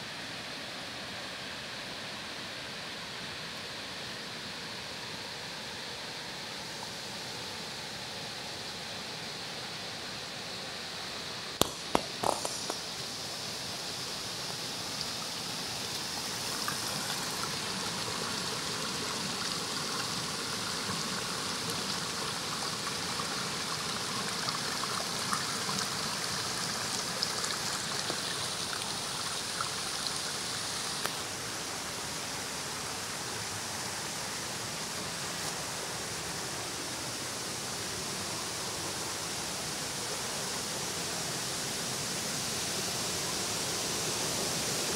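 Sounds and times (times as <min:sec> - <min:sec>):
water rushing over weir: 0:11.6 - 0:32.8.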